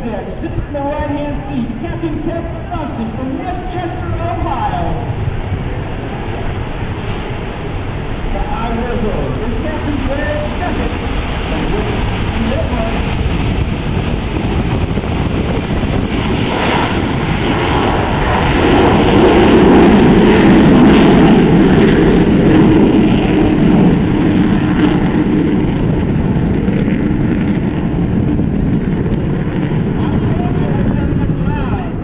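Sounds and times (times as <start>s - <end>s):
jet engines roaring at takeoff: 0.0s - 32.0s.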